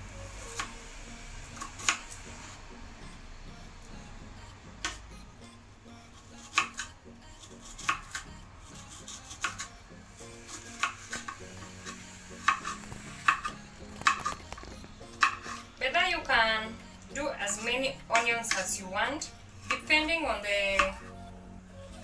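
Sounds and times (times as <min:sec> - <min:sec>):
knife chopping on cutting board: 0:06.5 - 0:06.9, 0:07.7 - 0:08.3, 0:09.0 - 0:09.7, 0:10.4 - 0:14.4, 0:15.2 - 0:15.6, 0:20.7 - 0:21.1.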